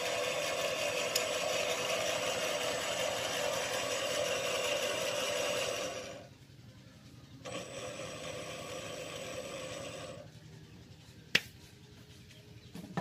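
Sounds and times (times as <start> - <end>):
metal lathe running: 0.0 - 6.4, 7.4 - 10.8.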